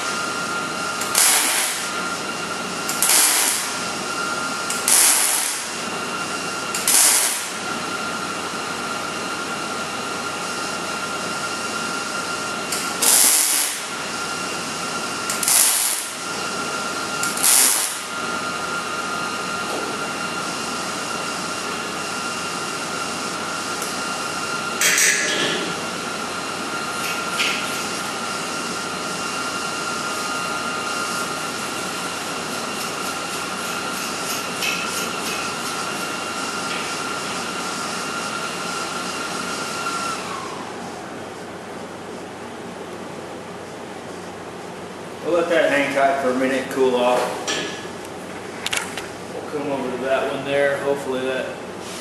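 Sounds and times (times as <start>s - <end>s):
steady high hum: 0.0s - 52.0s
welding arc crackling: 1.0s - 2.0s, 2.8s - 3.8s, 4.7s - 5.8s, 6.7s - 7.6s, 12.7s - 14.1s, 15.2s - 18.2s.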